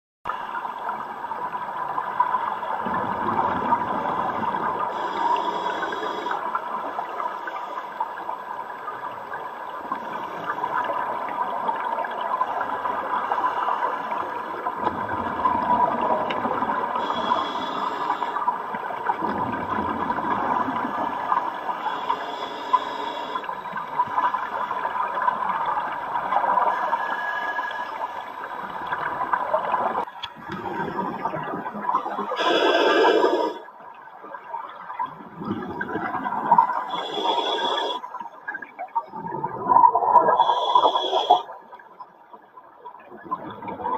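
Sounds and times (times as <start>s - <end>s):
underwater bubbling: 0.3s - 43.9s
short air hiss: 40.4s - 41.4s.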